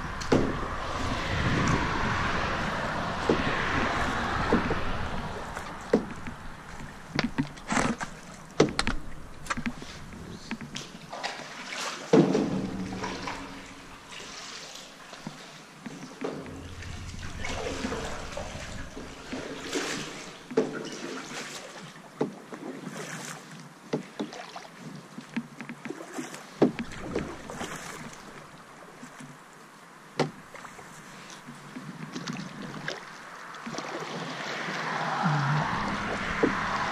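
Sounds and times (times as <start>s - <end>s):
paddle strokes splashing: 0.0s - 36.9s
paddle knocking canoe hull: 1.8s - 11.4s, 12.1s - 14.4s, 26.6s - 29.4s, 30.2s - 33.0s, 35.1s - 36.9s.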